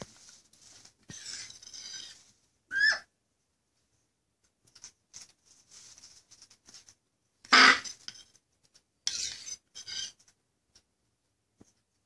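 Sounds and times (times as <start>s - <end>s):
parrot squawking: 7.5s - 7.9s.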